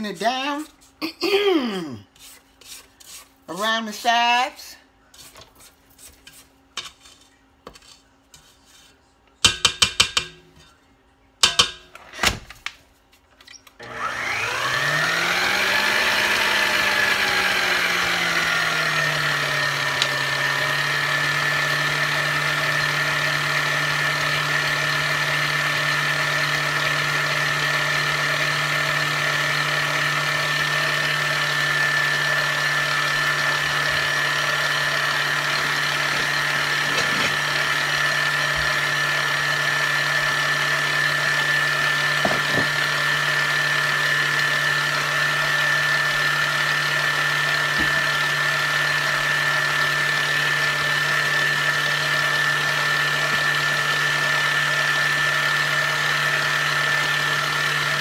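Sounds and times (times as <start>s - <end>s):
electric mixer motor running: 13.8s - 58.0s
knocks: 42.2s - 42.8s.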